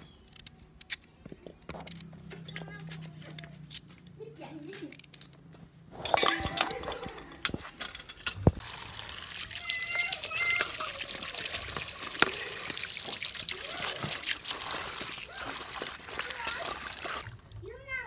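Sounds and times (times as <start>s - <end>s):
water pouring over vegetables: 8.6s - 17.6s.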